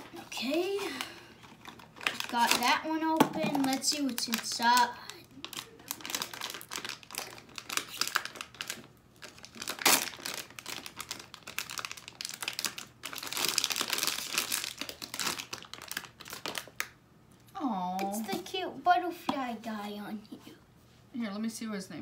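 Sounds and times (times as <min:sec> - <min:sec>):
foil wrapper crinkling: 0:00.4 - 0:17.0.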